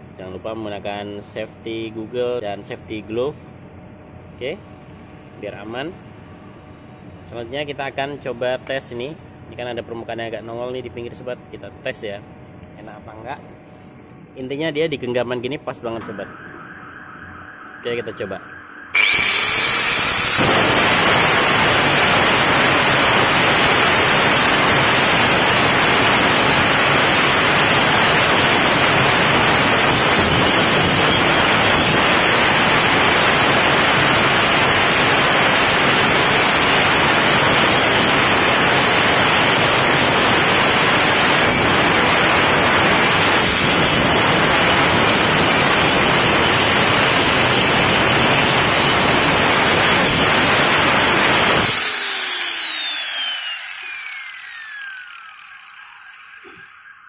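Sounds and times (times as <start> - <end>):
angle grinder grinding metal: 18.9 - 56.8.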